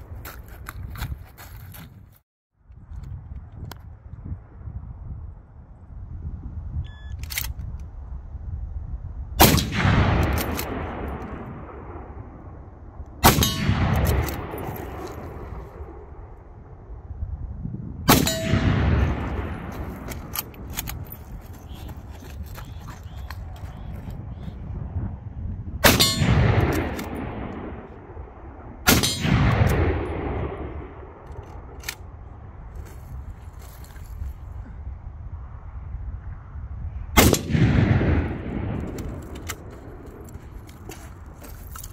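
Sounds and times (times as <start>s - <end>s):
rifle shots with rolling echo: 9.4s - 16.3s, 18.1s - 21.1s, 25.8s - 32.2s, 37.2s - 40.8s.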